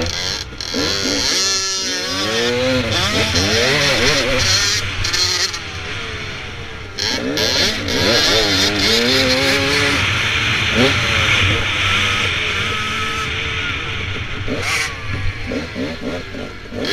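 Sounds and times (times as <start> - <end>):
dirt bike engine revving: 0.0 - 16.9.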